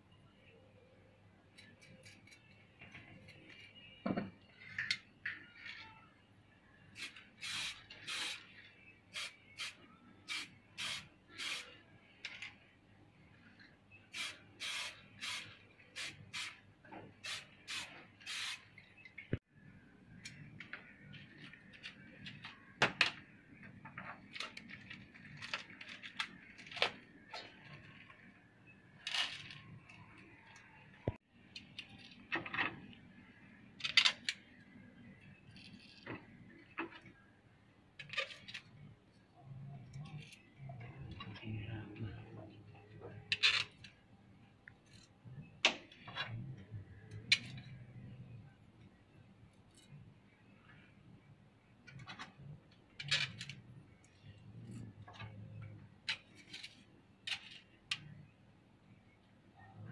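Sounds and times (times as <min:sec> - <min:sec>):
spray paint can hissing: 0:07.0 - 0:08.5, 0:09.1 - 0:11.7, 0:14.1 - 0:16.6, 0:17.2 - 0:18.6.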